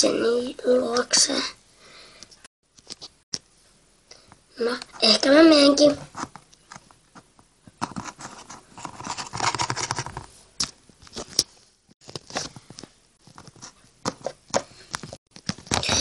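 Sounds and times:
toy scraping and rustling: 0:07.8 - 0:10.3.

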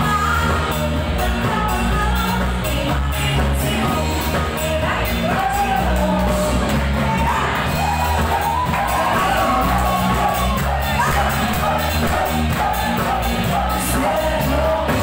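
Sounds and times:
bass line: 0:00.0 - 0:15.0
person singing: 0:00.0 - 0:15.0
drum beat: 0:05.2 - 0:15.0.

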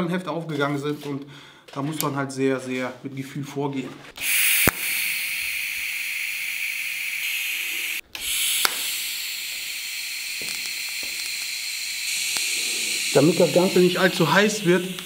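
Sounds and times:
welding arc hissing: 0:04.2 - 0:15.0
arc striking click: 0:08.1 - 0:09.0.

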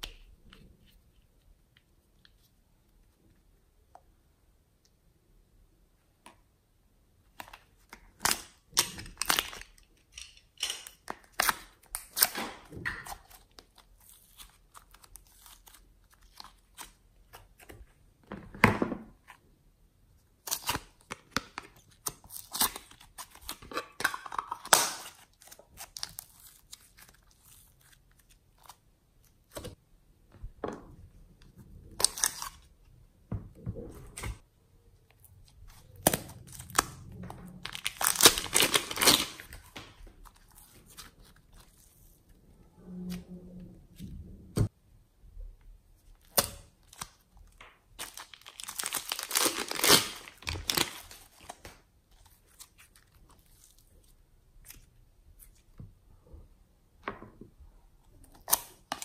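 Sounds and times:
slime squelch: 0:46.0 - 0:56.1.

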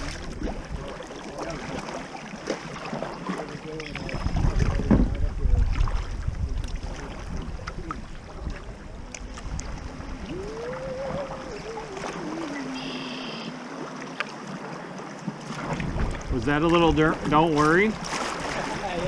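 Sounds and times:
wind buffeting microphone: 0:00.0 - 0:01.8, 0:03.9 - 0:12.7, 0:15.5 - 0:19.0
water lapping around kayak: 0:00.0 - 0:19.0
faint gliding tone: 0:07.6 - 0:14.5.

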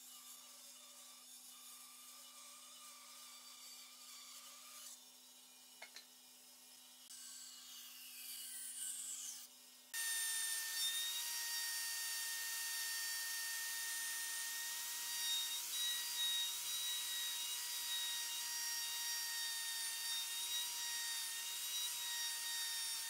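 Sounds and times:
band saw cutting wood: 0:00.0 - 0:06.0, 0:07.1 - 0:23.0
router high-pitched whine: 0:00.0 - 0:23.0.

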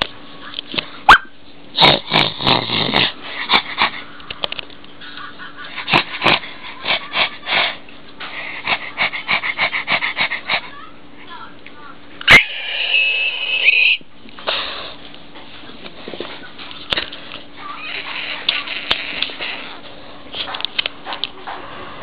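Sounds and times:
puppy sniffing: 0:05.7 - 0:10.9.

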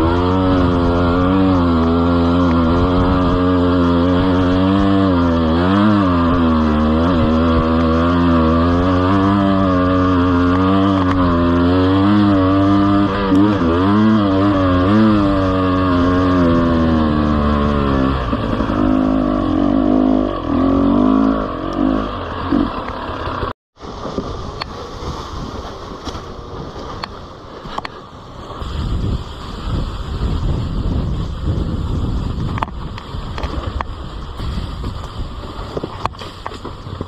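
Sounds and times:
motorcycle engine revving: 0:00.0 - 0:23.6
bike rattling over rough ground: 0:00.0 - 0:37.0.

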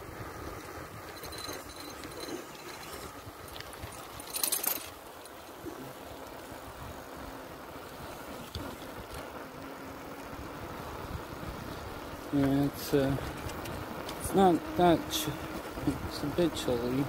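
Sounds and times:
wind noise on microphone: 0:00.0 - 0:04.8, 0:10.2 - 0:17.0
crackling burst: 0:05.6 - 0:17.0.

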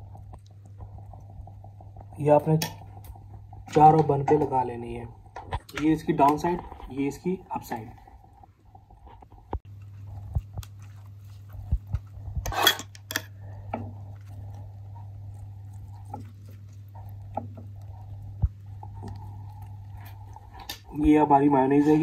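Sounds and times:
steady low hum: 0:00.0 - 0:22.0
spoon scraping a ceramic plate: 0:12.4 - 0:13.4.

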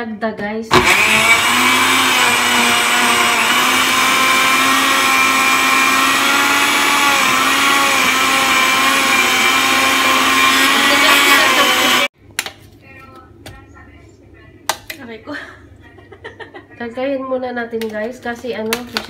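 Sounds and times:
blender motor running: 0:00.7 - 0:12.1.

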